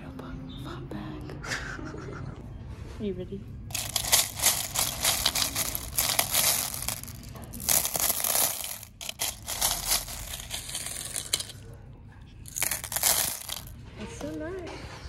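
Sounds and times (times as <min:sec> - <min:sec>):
stones and shells clattering: 0:03.7 - 0:11.6, 0:12.5 - 0:13.7.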